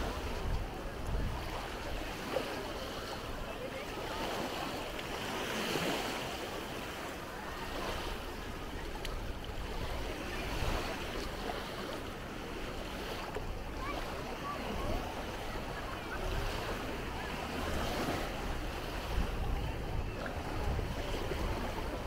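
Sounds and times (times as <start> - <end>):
wind rumble on microphone: 0.0 - 2.4, 7.7 - 22.0
faint distant voices: 0.0 - 22.0
small waves washing in: 0.0 - 22.0.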